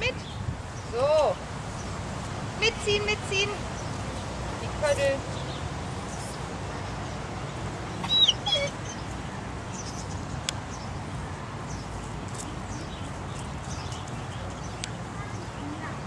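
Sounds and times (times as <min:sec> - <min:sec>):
high animal call: 0:08.0 - 0:09.0.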